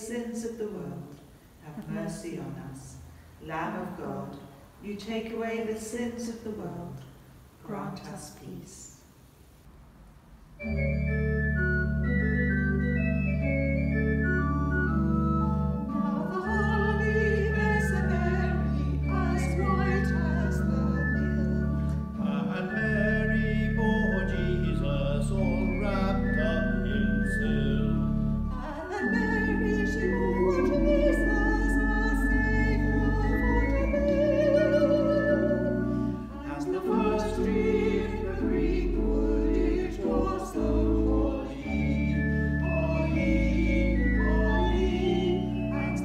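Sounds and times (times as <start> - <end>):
pipe organ playing held chords: 10.6 - 46.0
choir singing with vibrato: 13.9 - 46.0.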